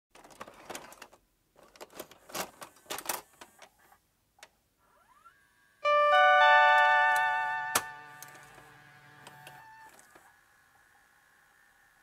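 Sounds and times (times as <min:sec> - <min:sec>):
tape mechanism clicking and clunking: 0:06.8 - 0:10.3.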